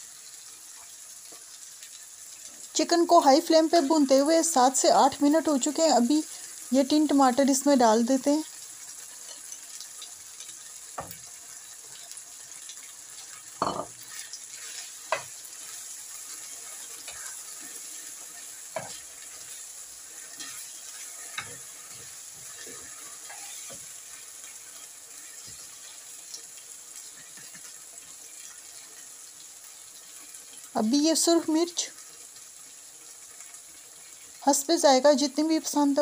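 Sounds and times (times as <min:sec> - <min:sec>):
food sizzling in a frying pan: 0:00.0 - 0:36.0
spatula knocking on pan: 0:13.6 - 0:14.0, 0:18.7 - 0:19.0.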